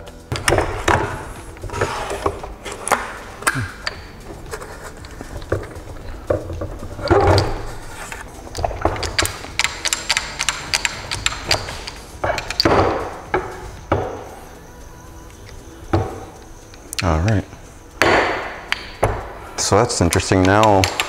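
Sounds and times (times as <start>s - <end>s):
metal scraping rubs: 0.6s - 9.6s.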